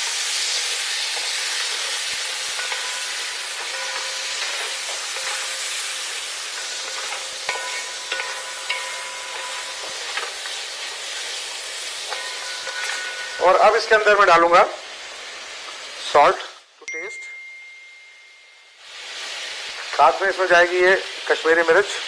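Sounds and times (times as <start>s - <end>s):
chicken sizzling in hot oil: 0.0s - 16.6s, 18.6s - 22.0s
wooden spoon knocking metal pan: 2.1s - 14.1s.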